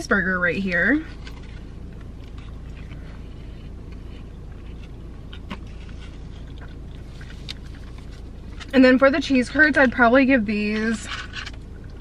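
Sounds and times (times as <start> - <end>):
low hum inside car: 0.0 - 12.0
person chewing: 1.1 - 8.8.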